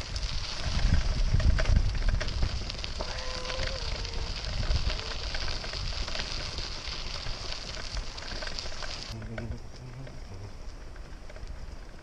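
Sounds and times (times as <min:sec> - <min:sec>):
bicycle tyres crunching on gravel: 0:00.0 - 0:12.0.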